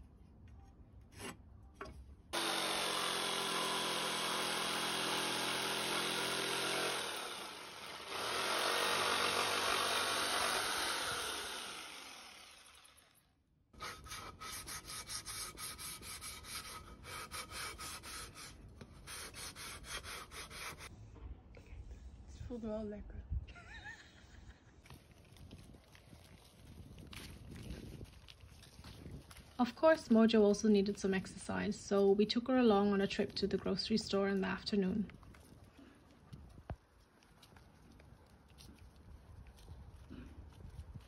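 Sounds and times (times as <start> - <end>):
electric jigsaw cutting wood: 2.4 - 13.3
sanding block rubbing wood: 13.8 - 20.9.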